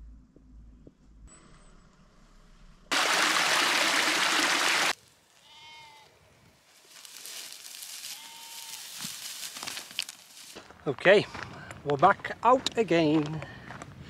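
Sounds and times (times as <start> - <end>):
sheep bleating: 5.4 - 6.1, 8.0 - 9.0.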